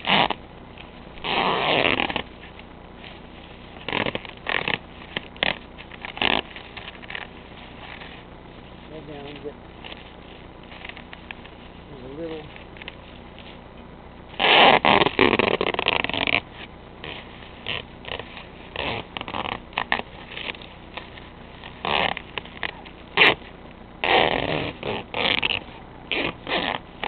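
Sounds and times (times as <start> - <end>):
duct tape ripping off roll: 0.0 - 8.2, 14.3 - 27.0.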